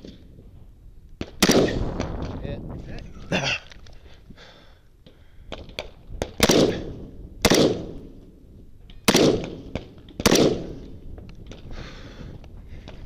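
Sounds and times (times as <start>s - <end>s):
rifle shots with echo: 1.2s - 2.1s, 6.2s - 8.2s, 9.0s - 10.9s.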